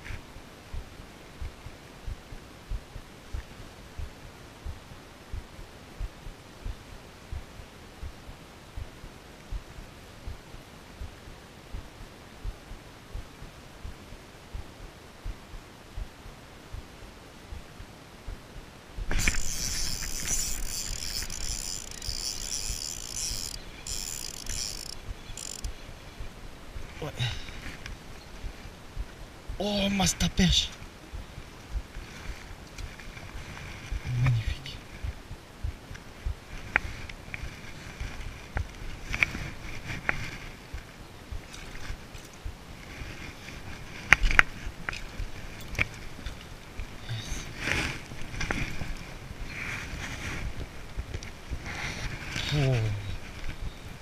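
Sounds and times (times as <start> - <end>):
fishing reel whirring: 19.1 - 25.7
handling rumble and rustle: 30.5 - 54.0.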